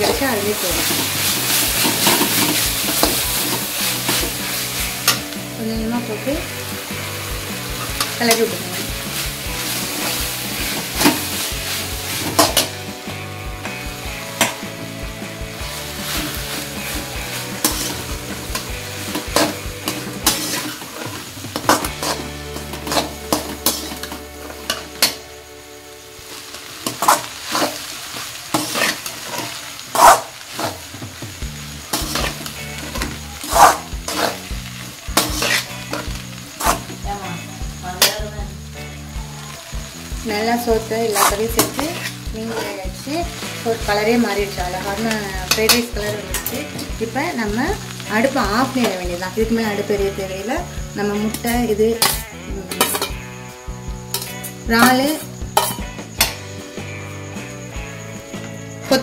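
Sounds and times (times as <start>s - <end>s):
metal ladle scraping pan: 0.0s - 5.4s, 6.8s - 12.8s, 15.5s - 25.2s, 28.5s - 30.8s, 31.9s - 34.5s, 35.2s - 36.9s, 52.0s - 53.2s, 55.1s - 56.4s
rice and vegetables sizzling: 0.0s - 59.0s.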